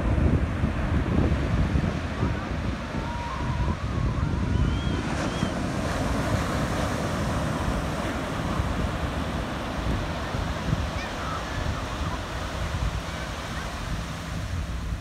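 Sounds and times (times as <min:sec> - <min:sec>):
ocean surf on sandy beach: 0:00.0 - 0:15.0
wind buffeting microphone: 0:00.0 - 0:15.0.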